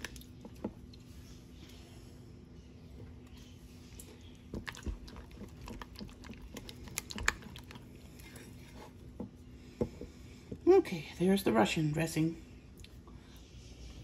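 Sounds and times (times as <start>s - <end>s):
spatula stirring thick dressing: 3.7s - 10.8s.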